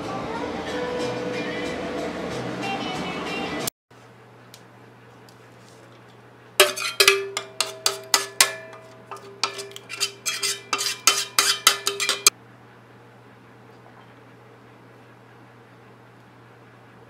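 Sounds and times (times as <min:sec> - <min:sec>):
metal spoon scraping a steel pot: 0:06.6 - 0:12.3.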